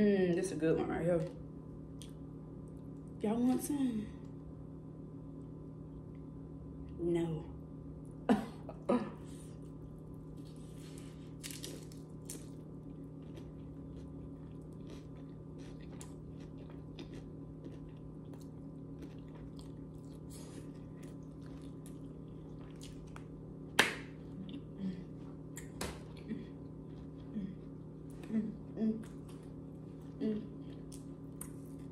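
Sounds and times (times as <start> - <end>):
low electrical hum: 0.0 - 31.9
person chewing: 9.4 - 23.4, 24.1 - 31.9.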